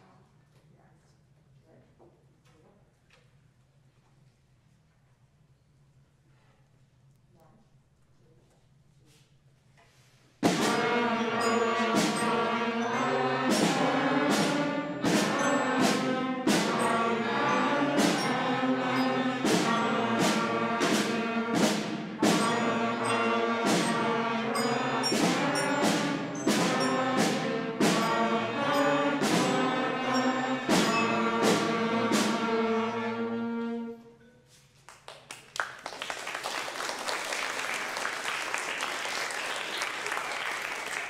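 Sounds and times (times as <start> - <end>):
school concert band playing: 10.4 - 34.2, 36.2 - 41.0
audience clapping: 34.8 - 41.0.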